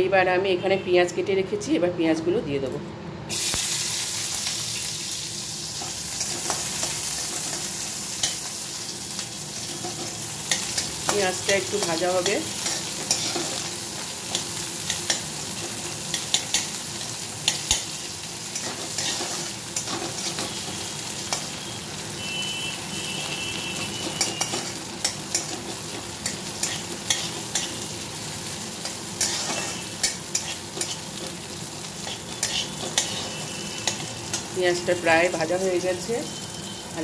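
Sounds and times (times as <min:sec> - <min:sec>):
onions sizzling in oil: 0:03.3 - 0:37.0
metal spatula scraping pan: 0:18.6 - 0:21.5, 0:28.8 - 0:31.0, 0:32.0 - 0:34.5.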